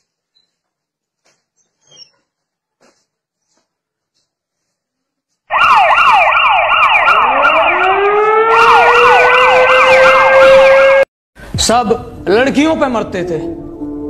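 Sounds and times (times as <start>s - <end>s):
police siren yelp: 5.5s - 11.1s
siren tone winding up: 5.5s - 11.1s.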